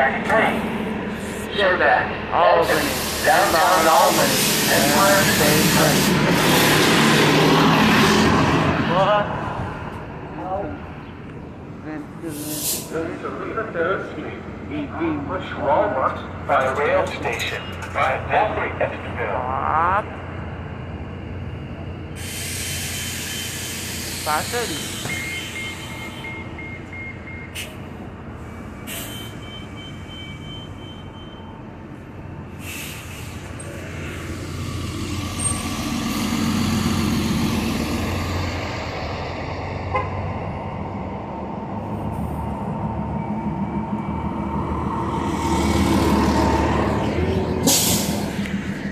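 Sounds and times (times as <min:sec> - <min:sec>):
bus passing: 0:00.0 - 0:48.9
street traffic rumbling: 0:00.0 - 0:48.9.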